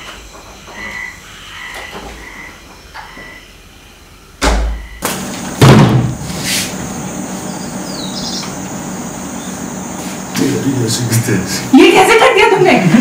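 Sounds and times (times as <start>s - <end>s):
low room hum: 0.0s - 13.0s
door banging: 4.4s - 6.2s
door thumping shut: 4.4s - 6.2s.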